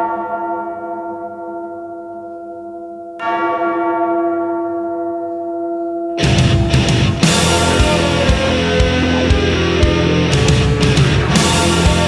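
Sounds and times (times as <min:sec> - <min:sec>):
bell ringing: 0:05.8 - 0:12.0.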